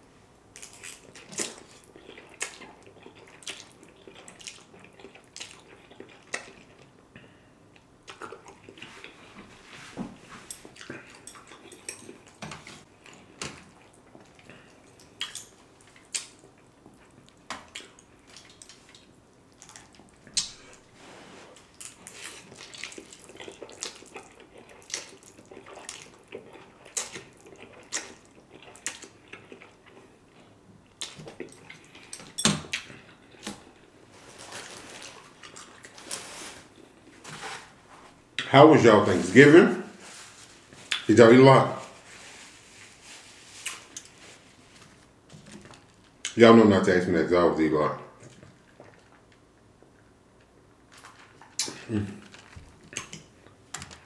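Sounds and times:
person slurping and chewing noodles: 0:00.6 - 0:07.0, 0:10.4 - 0:37.5.

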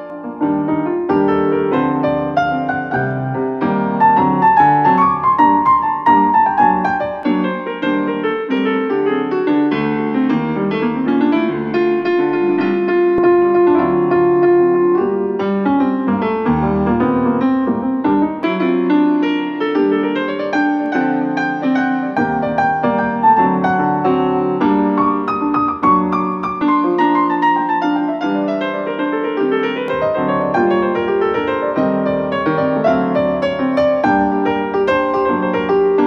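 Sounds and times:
piano music through speaker: 0:00.0 - 0:36.0.

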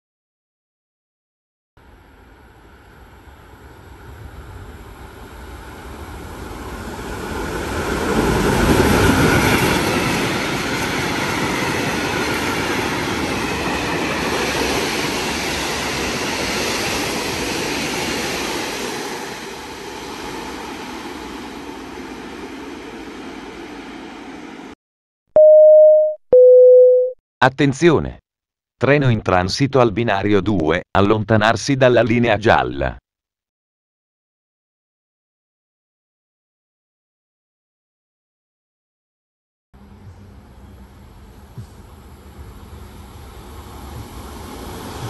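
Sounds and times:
train wheels rumbling on rails: 0:03.5 - 0:24.4, 0:39.9 - 0:45.0.

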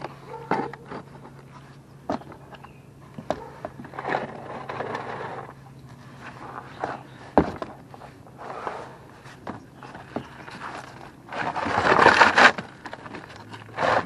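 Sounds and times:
scraping: 0:03.3 - 0:14.0
clicks and knocks under car: 0:06.3 - 0:07.9.

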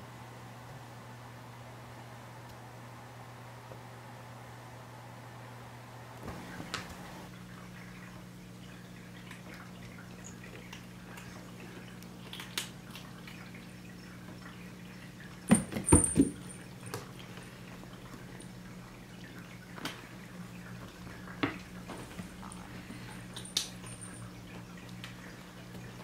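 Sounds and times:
low steady hum: 0:00.0 - 0:26.0
kitten licking wet ticks: 0:10.3 - 0:13.5.

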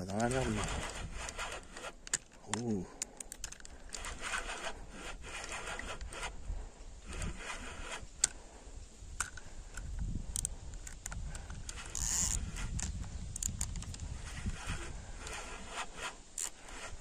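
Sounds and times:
reel clicks: 0:00.0 - 0:06.4, 0:07.0 - 0:08.4, 0:09.1 - 0:17.0
fishing reel whirring: 0:03.3 - 0:06.4, 0:11.6 - 0:12.8, 0:13.4 - 0:17.0.

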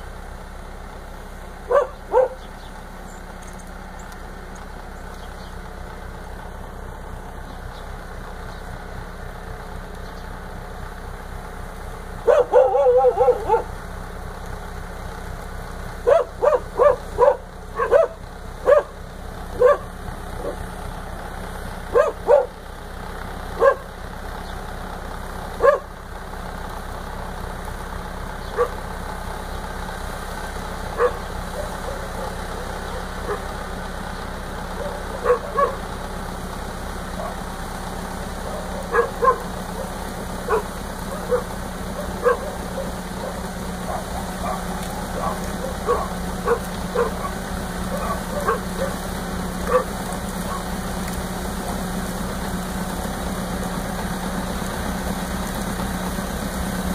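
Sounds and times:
snowblower drone: 0:00.0 - 0:56.9
dog barking: 0:01.7 - 0:02.4, 0:12.2 - 0:13.7, 0:16.0 - 0:19.0, 0:19.6 - 0:20.6, 0:21.9 - 0:22.6, 0:23.6 - 0:23.9, 0:25.6 - 0:25.9, 0:28.6 - 0:28.8, 0:31.0 - 0:33.5, 0:34.8 - 0:35.8, 0:38.5 - 0:39.9, 0:40.5 - 0:49.0, 0:49.7 - 0:49.9, 0:50.5 - 0:50.7.

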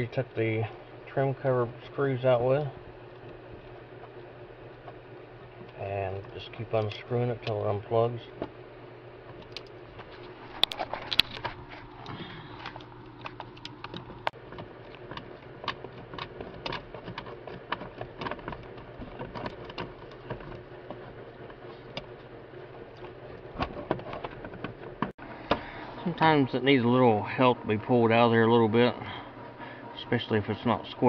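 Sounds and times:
faint steady hum: 0:00.0 - 0:31.0
plastic connector and wiring shifting: 0:09.3 - 0:22.2.

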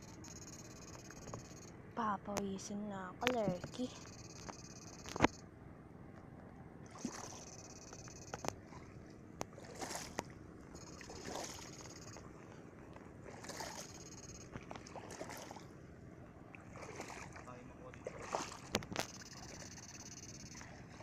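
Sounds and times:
high buzz: 0:00.0 - 0:02.2, 0:03.0 - 0:05.5, 0:07.0 - 0:08.6, 0:10.0 - 0:12.4, 0:13.4 - 0:14.6, 0:18.8 - 0:20.8
footsteps sloshing through water: 0:06.8 - 0:07.5, 0:08.4 - 0:19.2.

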